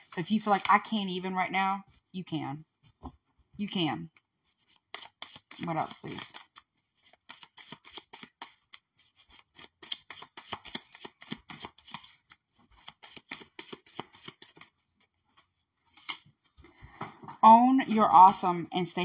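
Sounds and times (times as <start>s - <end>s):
cards being shuffled: 4.1s - 14.8s, 15.9s - 16.6s.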